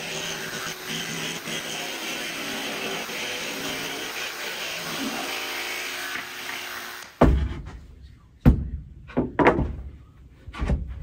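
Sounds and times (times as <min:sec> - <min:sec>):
dust extractor: 0:00.0 - 0:07.2
loud thumps and knocks: 0:07.2 - 0:07.8, 0:08.4 - 0:09.9.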